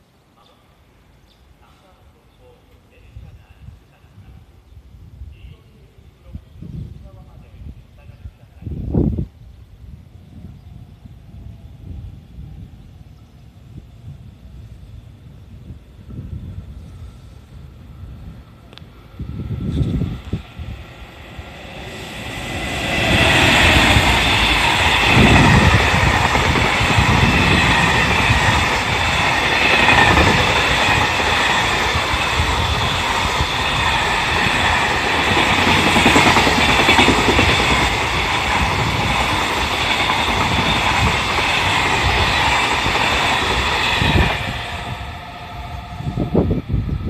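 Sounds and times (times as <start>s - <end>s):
freight train passing: 0.0s - 47.0s
wheels clickety-clack on rails: 22.4s - 44.3s.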